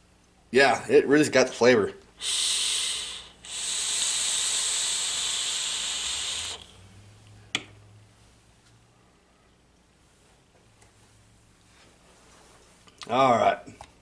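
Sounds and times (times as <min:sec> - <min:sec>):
breathy vaping hiss: 0:02.2 - 0:06.9.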